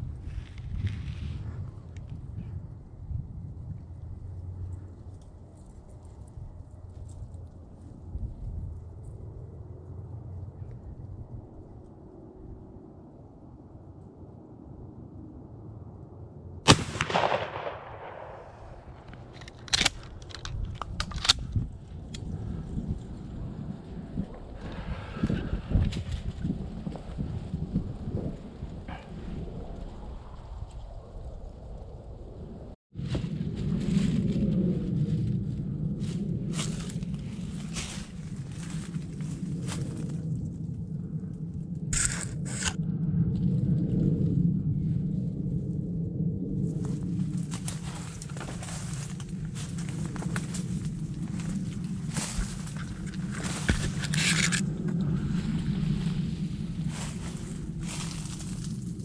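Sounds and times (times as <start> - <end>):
crackly scrapes through dry brush: 0.0 - 2.2, 4.2 - 9.2, 18.8 - 31.4, 33.0 - 40.7, 41.9 - 42.8, 46.6 - 59.0
shotgun shot: 16.7 - 19.1
gun handling clicks: 16.7 - 21.6, 42.0 - 42.8, 53.8 - 54.6
low steady rumble: 31.8 - 59.0.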